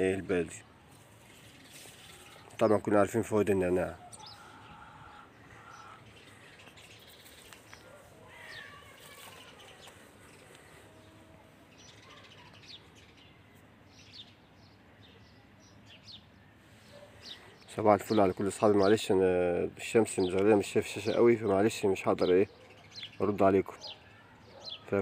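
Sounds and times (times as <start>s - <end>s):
faint bird chirps: 0.8s - 19.0s.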